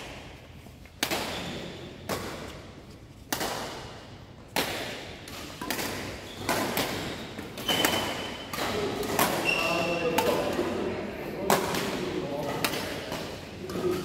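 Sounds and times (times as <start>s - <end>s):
racket striking shuttlecock: 0.0s - 10.7s.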